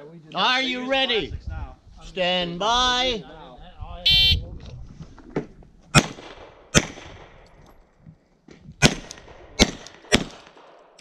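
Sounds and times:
handgun shots with echo: 0:06.0 - 0:07.4, 0:08.8 - 0:10.8.

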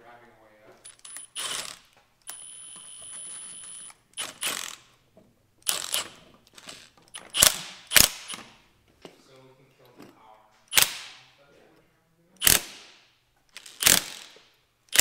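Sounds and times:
impact wrench bursts: 0:00.9 - 0:04.9, 0:05.6 - 0:08.6, 0:12.4 - 0:15.0.

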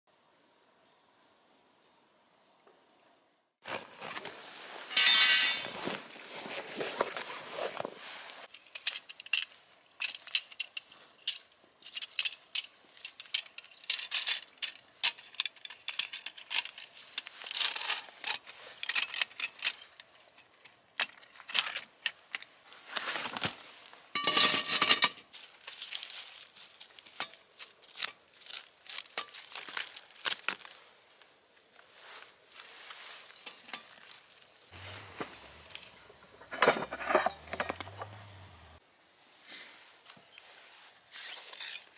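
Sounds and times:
fabric bag rustling: 0:03.6 - 0:08.5
metal stand clicking and clacking: 0:08.6 - 0:20.4.

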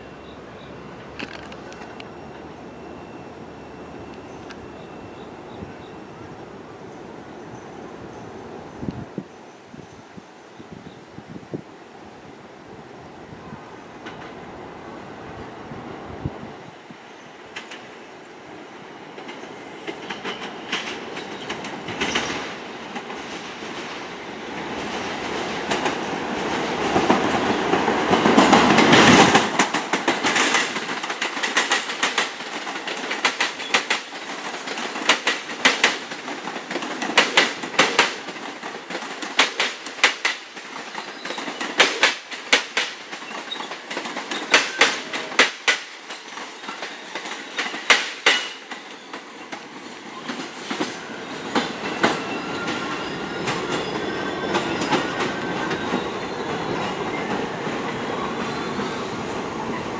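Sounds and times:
subway train rumbling past: 0:00.0 - 0:59.9
wheels clacking over rail joints: 0:19.1 - 0:59.9.

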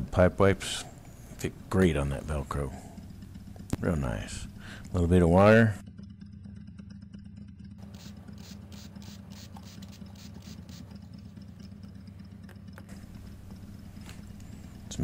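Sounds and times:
low electrical hum: 0:00.0 - 0:06.4, 0:07.1 - 0:15.0.

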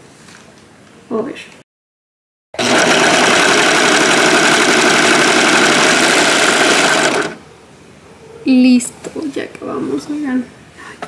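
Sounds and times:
sewing machine running: 0:02.6 - 0:07.4.

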